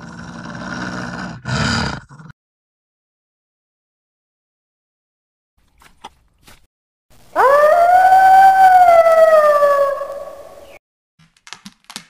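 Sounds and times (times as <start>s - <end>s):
wolf howling: 7.3s - 10.8s.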